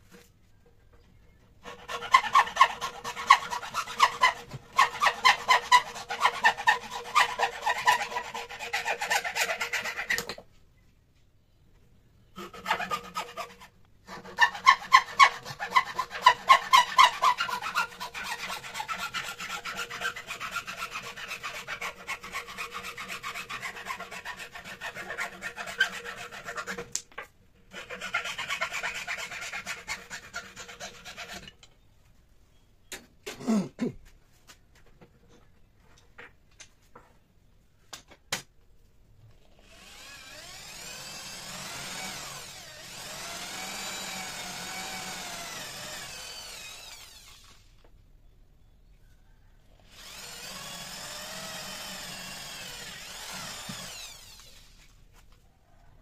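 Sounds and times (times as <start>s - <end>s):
hacksaw cutting wood: 1.6s - 10.4s, 12.4s - 27.1s, 27.7s - 31.6s, 39.6s - 47.8s, 49.9s - 54.9s.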